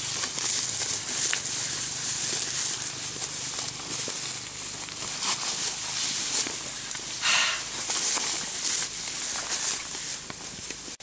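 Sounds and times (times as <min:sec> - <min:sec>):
dry grass rustling: 0:00.0 - 0:11.0.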